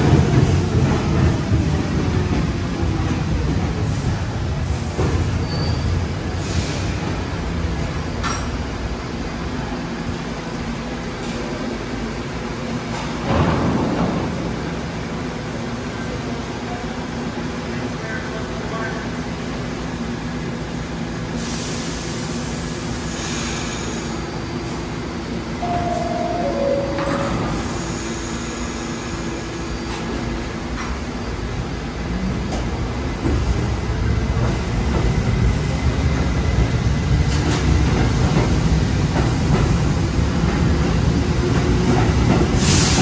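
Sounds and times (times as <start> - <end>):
two-note door chime: 25.6 - 27.8.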